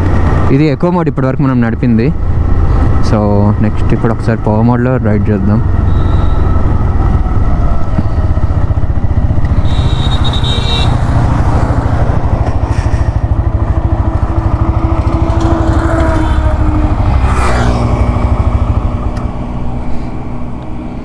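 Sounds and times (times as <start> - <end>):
brief tone: 5.8 - 6.7, 9.5 - 10.9
motorcycle engine idling: 7.8 - 16.0.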